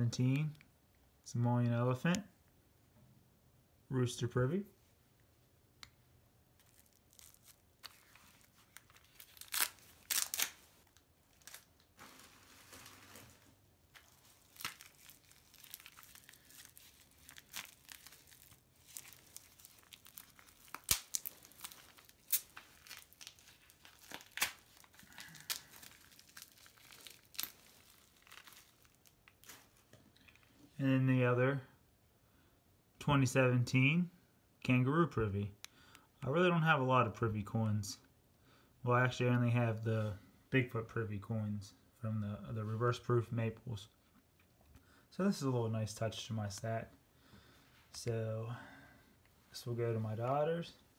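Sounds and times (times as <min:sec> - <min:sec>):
plastic wrapping crinkling and tearing: 0:06.6 - 0:30.5.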